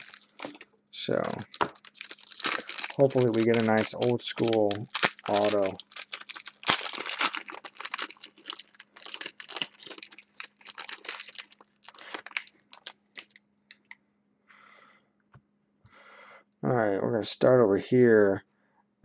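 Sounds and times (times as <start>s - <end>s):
foil wrapper tearing and crinkling: 0.0s - 13.4s.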